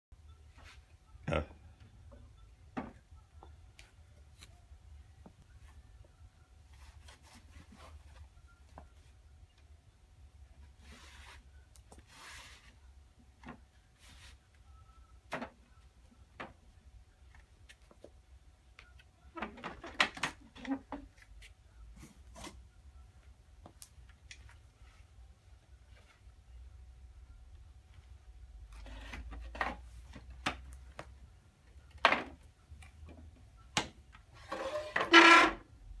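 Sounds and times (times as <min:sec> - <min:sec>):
chair scraping on concrete floor: 0:34.4 - 0:35.7.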